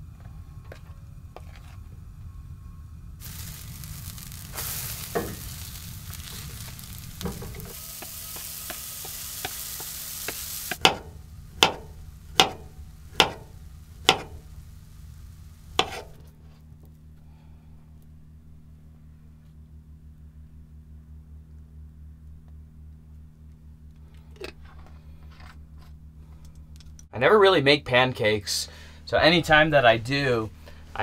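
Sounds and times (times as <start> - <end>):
batter sizzling in a skillet: 3.2 - 16.2.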